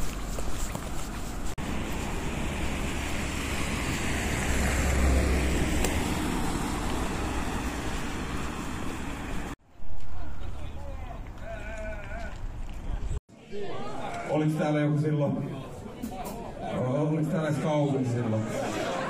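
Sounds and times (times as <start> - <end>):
road traffic noise: 0.0 - 13.2
vehicle passing: 1.6 - 9.6.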